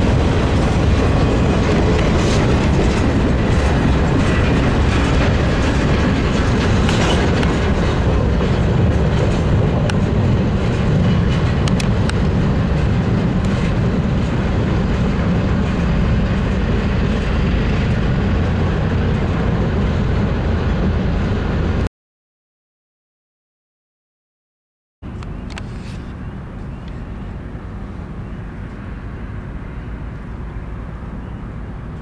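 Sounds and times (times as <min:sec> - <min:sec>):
train wheels rumbling on rails: 0:00.0 - 0:21.9.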